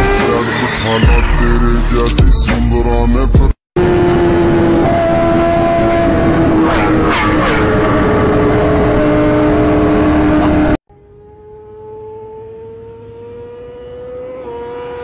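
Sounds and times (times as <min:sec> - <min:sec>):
distant motorcycle approaching: 0:03.8 - 0:15.0
motorcycle engine at high revs: 0:03.8 - 0:15.0.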